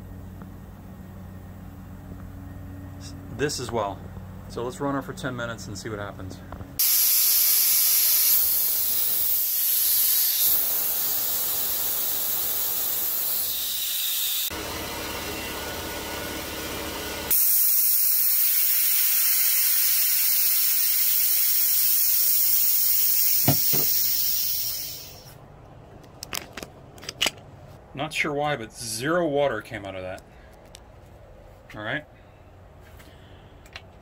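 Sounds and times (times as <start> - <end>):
compressed air hissing from valve: 6.8 - 14.5, 17.3 - 25.3.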